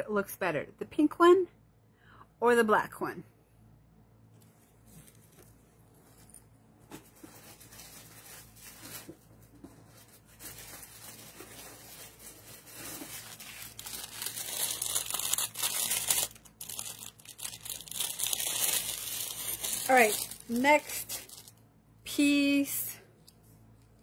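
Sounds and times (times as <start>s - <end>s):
packaging crinkling and rustling: 4.5s - 21.6s.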